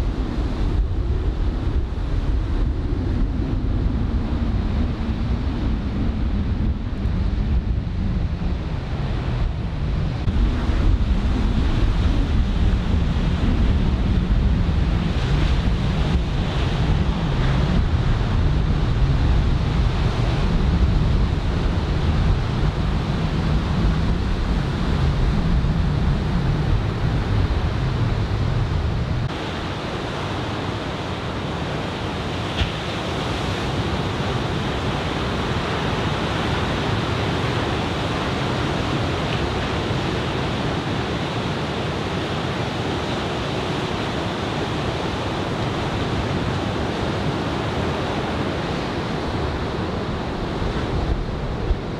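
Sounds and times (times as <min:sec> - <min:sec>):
wind rumbling on microphone: 0:00.0 - 0:51.9
ocean surf breaking: 0:08.4 - 0:51.9.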